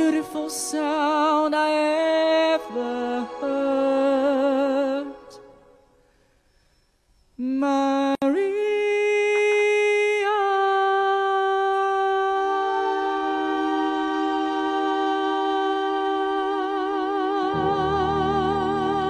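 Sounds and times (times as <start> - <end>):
man singing into a microphone: 0.0 - 5.4, 7.4 - 19.0
low accompaniment tone: 17.4 - 19.0.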